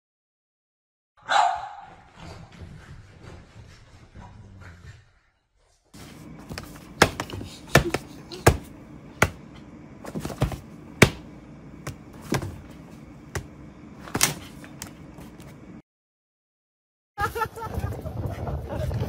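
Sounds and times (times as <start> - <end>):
steady low hum: 6.0 - 15.8
hand tapping on paper: 6.5 - 9.4.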